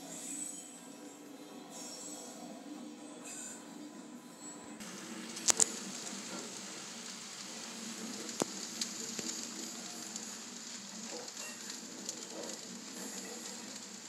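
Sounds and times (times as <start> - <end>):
model trains rolling hiss: 4.8 - 14.0.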